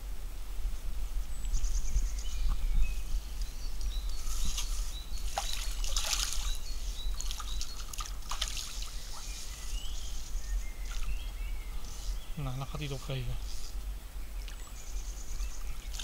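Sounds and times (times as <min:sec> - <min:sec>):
birds chirping: 0:00.7 - 0:16.0
fish splashing in water: 0:05.3 - 0:09.3.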